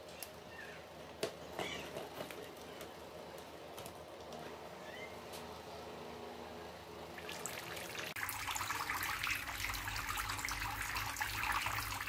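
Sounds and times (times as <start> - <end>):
water trickling onto stones: 7.3 - 12.0.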